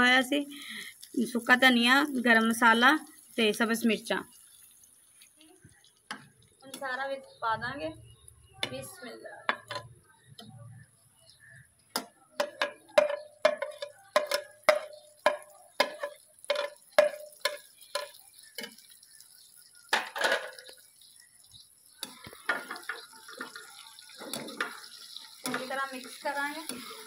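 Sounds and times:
metal spoon clinking in pan: 12.4 - 18.8.

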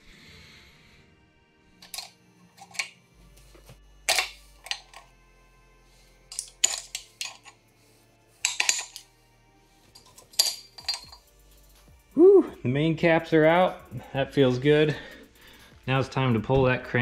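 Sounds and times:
metallic clinks and knocks: 1.8 - 3.0, 4.1 - 5.1, 6.3 - 7.6, 8.4 - 9.1, 9.9 - 11.4.

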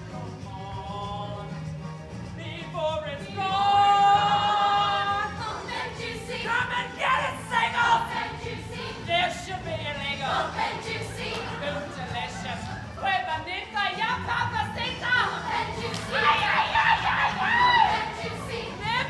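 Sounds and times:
chorus of young voices singing: 3.2 - 12.8, 14.4 - 19.0.

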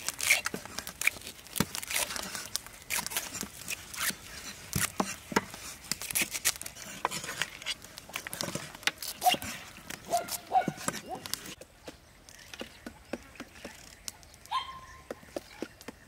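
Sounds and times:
leaves rustling and stems snapping: 0.0 - 11.6.

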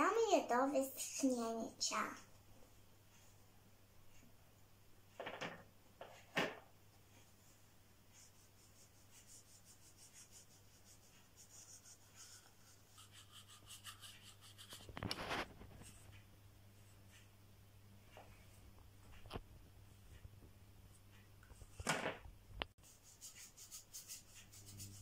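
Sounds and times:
paintbrush scratching on cardboard: 8.1 - 16.1, 22.8 - 25.0.

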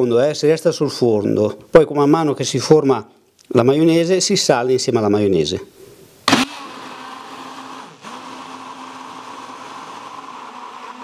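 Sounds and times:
immersion blender whirring: 6.3 - 11.0.

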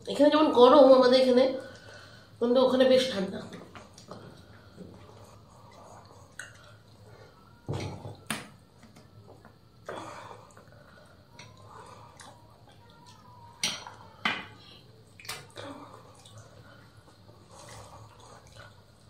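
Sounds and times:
people chewing: 8.8 - 13.3.

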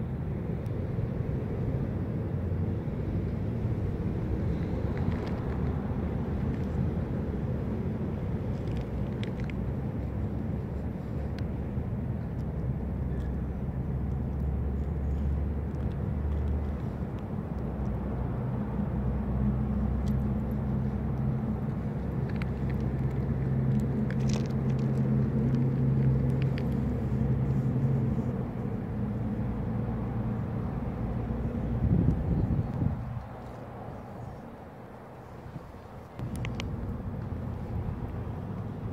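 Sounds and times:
engine rumble: 0.0 - 38.9.

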